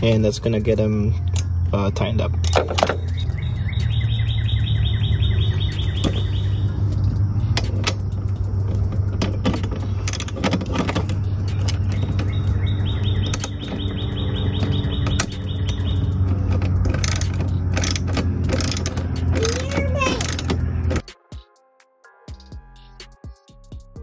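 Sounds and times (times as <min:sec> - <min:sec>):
steady low hum: 0:00.0 - 0:21.0
socket ratchet clicking: 0:07.2 - 0:21.1.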